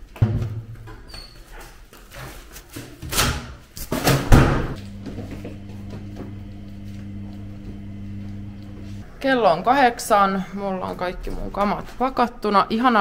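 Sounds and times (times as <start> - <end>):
steady low hum: 4.7 - 9.0.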